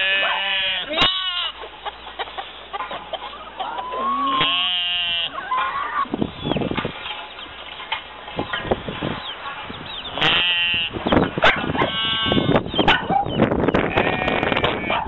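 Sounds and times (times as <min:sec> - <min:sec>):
animal bleating: 0:00.0 - 0:01.6, 0:03.9 - 0:05.9, 0:10.1 - 0:11.0, 0:11.8 - 0:12.6, 0:13.9 - 0:15.0
chickens clucking: 0:00.0 - 0:15.0.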